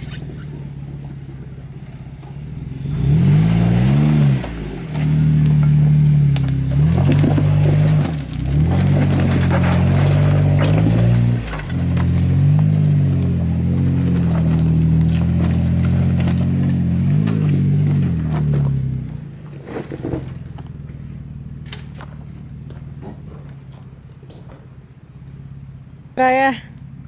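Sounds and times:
engine revving: 0:00.0 - 0:20.6.

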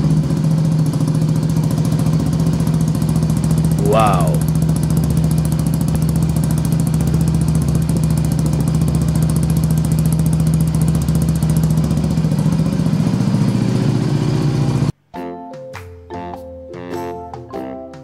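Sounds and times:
fast ticking rattle: 0:00.0 - 0:14.0
motorcycle engine idling: 0:00.0 - 0:14.9.

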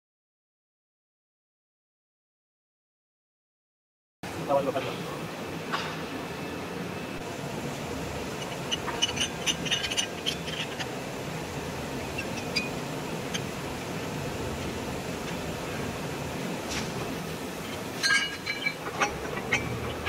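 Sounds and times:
steady workshop hum: 0:04.2 - 0:20.0.

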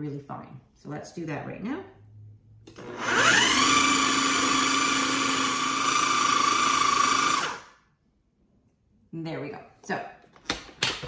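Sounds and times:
food processor motor whirring: 0:02.7 - 0:07.8.

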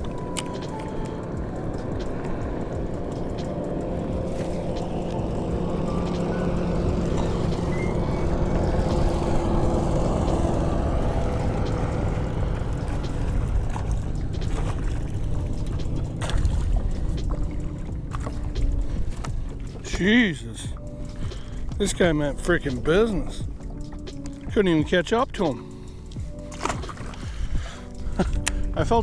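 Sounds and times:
electric motor humming: 0:00.0 - 0:16.0
water and wind noise: 0:00.0 - 0:29.0.

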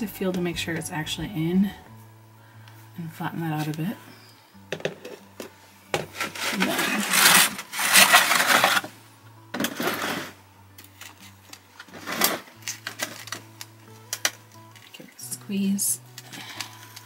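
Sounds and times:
scraping and rustling in potting mix: 0:04.9 - 0:09.0, 0:09.6 - 0:10.4, 0:11.0 - 0:13.7.

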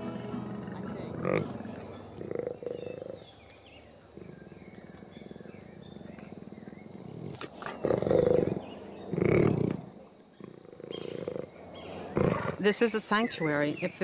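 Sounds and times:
jaguar growling: 0:01.1 - 0:03.3, 0:04.0 - 0:12.7.

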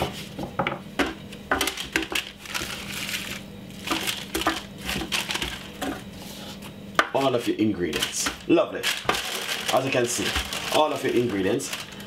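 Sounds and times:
paper crinkling and rustling: 0:01.7 - 0:05.8, 0:07.2 - 0:12.0.

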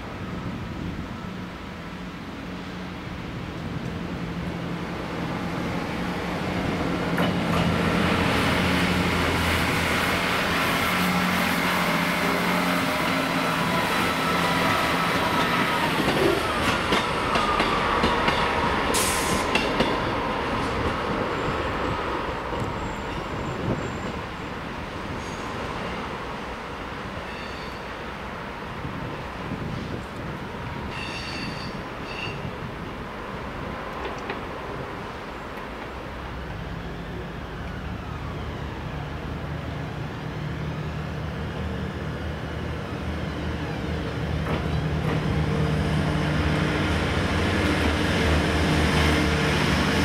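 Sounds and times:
diesel train engine droning: 0:00.0 - 0:28.1, 0:34.8 - 0:50.0
train wheels clicking over rail joints: 0:44.3 - 0:45.5.

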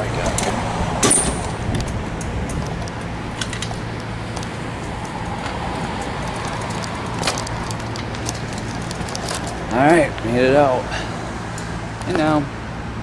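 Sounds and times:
bicycle clicking and rattling: 0:00.2 - 0:10.4.

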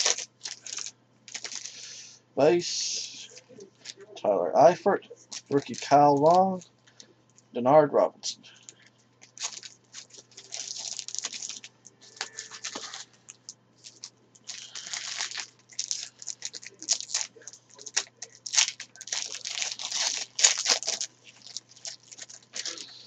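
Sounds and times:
wrapper tearing and crinkling: 0:00.0 - 0:01.9, 0:05.3 - 0:06.4, 0:09.2 - 0:22.9
cards being handled: 0:05.3 - 0:07.0, 0:08.6 - 0:22.9.

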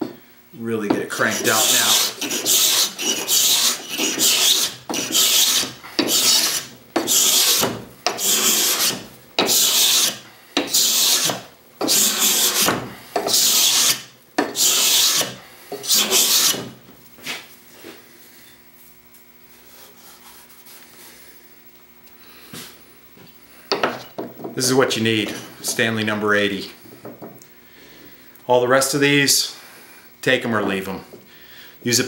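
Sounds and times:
scraper rasping on wood: 0:01.1 - 0:16.7.

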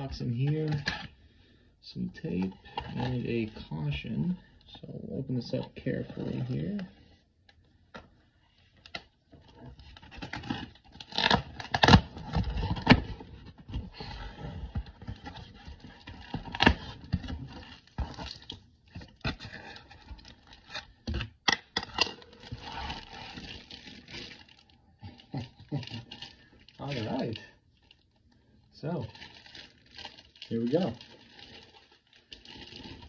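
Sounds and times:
plastic wrap crinkling: 0:08.5 - 0:33.0.

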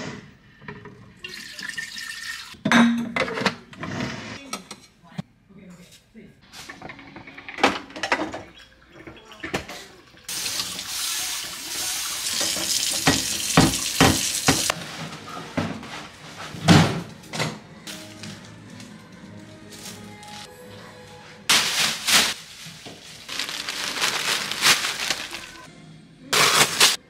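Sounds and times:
kitchen tap running: 0:01.2 - 0:02.6, 0:08.0 - 0:14.7.

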